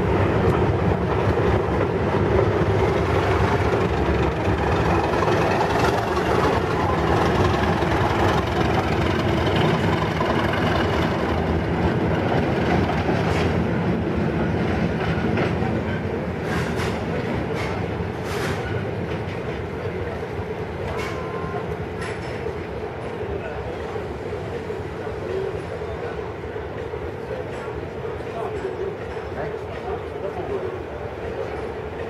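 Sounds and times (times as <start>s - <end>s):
diesel locomotive engine running: 0.0s - 23.0s
train wheels clattering over rail joints: 15.0s - 19.7s, 21.9s - 23.2s.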